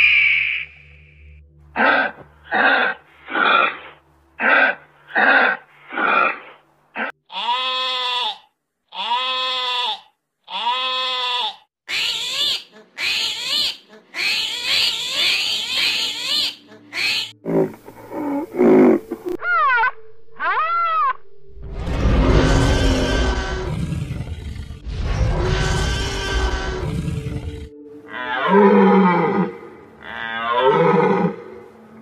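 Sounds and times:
sheep bleating: 7.3 - 11.7.

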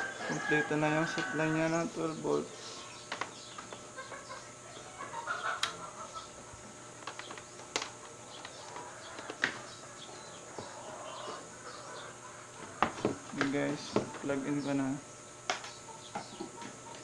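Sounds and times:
bird clucking: 2.8 - 6.6, 8.4 - 13.2, 15.7 - 17.0.

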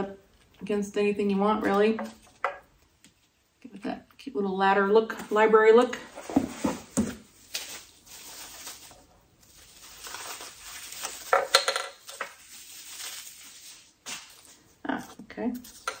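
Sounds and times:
paper and cardboard rustling: 5.1 - 16.0.

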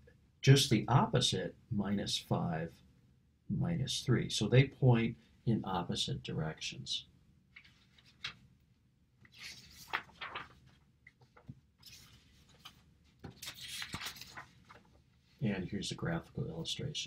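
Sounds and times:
paper rustling: 7.6 - 8.5, 9.2 - 15.4.

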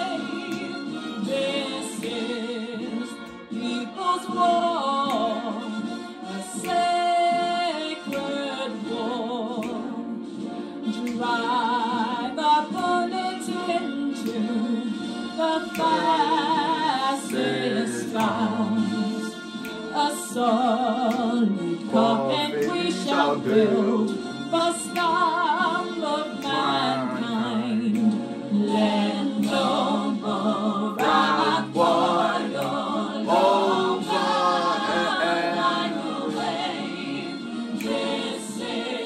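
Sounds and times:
choir singing: 0.0 - 10.0, 10.9 - 39.0
woman singing with vibrato: 10.9 - 36.4.

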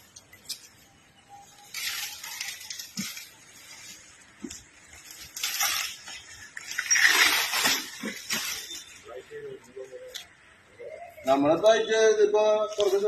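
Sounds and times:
elephant crunching palm leaves: 0.4 - 9.0.

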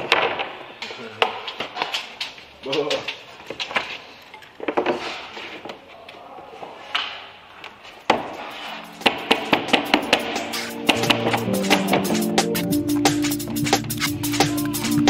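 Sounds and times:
music with regular beat: 8.5 - 15.0.

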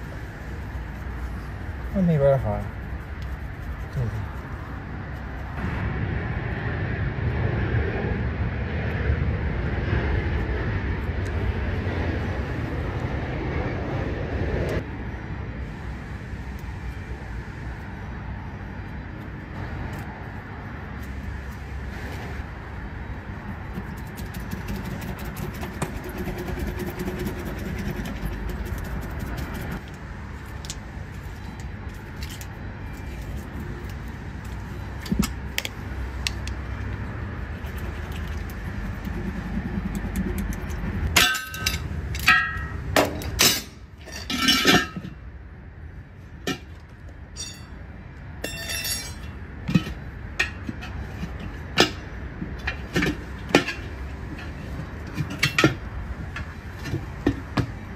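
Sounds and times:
steady low rumble: 0.0 - 46.4
metal tools clinking: 47.4 - 47.8, 48.4 - 49.3.

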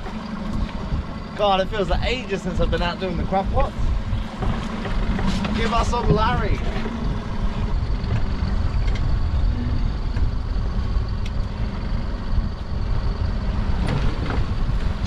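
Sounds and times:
boat noise: 0.0 - 15.0
wind rumble: 0.0 - 15.0.

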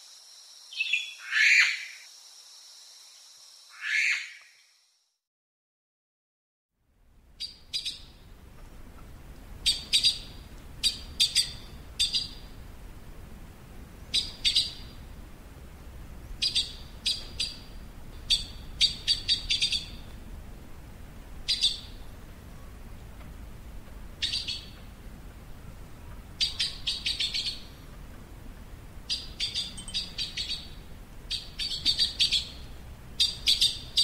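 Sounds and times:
magpie calling: 0.8 - 2.0, 3.7 - 4.5, 18.3 - 20.0, 24.2 - 24.8, 26.4 - 27.8, 29.1 - 34.0
faint low background noise: 6.8 - 34.0.

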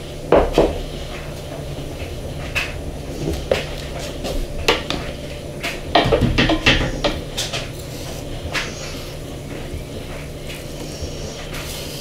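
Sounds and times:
louder knocks and rattles: 2.4 - 7.8.

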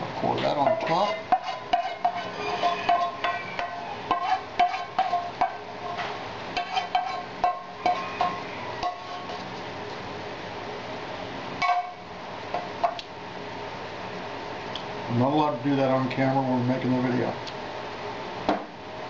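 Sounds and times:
wooden spoon knocking a frying pan: 2.9 - 5.6.

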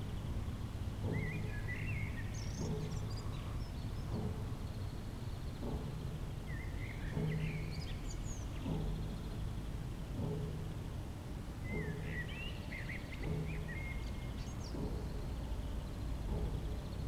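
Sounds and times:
dull knocking with low ring: 0.0 - 17.0
bird chirping and trilling: 1.0 - 5.3, 6.0 - 9.6, 11.6 - 17.0.

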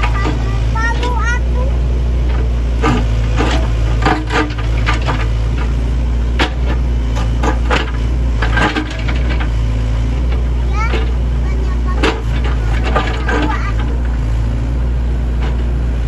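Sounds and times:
excavator diesel engine running: 0.0 - 16.0
machine knocks and clanks: 2.2 - 9.6, 10.2 - 14.3.

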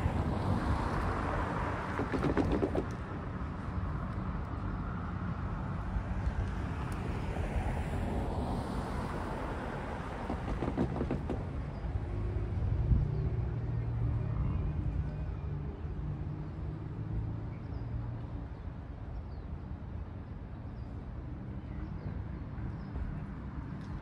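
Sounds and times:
wind rumble on microphone: 0.0 - 16.2
cars passing: 0.0 - 24.0
tyres knocking over rails: 10.3 - 11.6.

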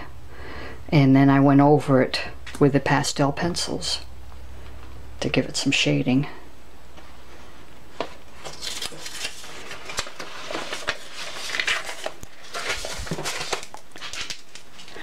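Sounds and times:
pages rustling: 8.0 - 15.0.

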